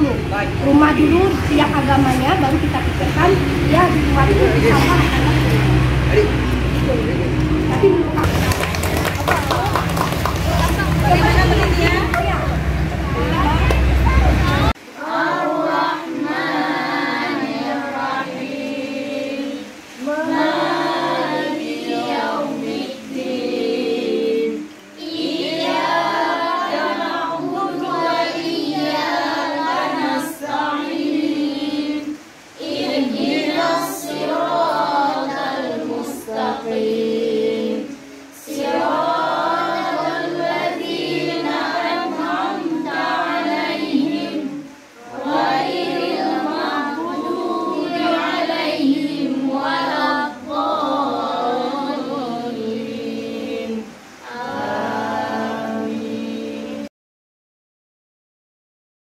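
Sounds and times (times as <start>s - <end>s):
group of voices singing: 0.0s - 56.9s.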